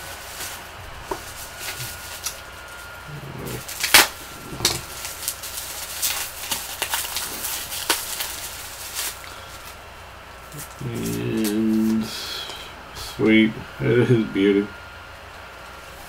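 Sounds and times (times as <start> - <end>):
bubble wrap crinkling: 0.0 - 12.5
bubble wrap snaps: 3.7 - 9.7.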